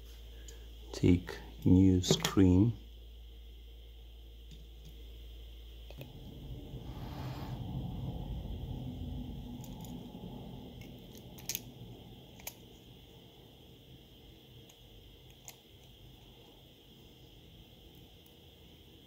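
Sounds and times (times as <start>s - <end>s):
small plastic and metal clicks: 14.7s - 16.0s.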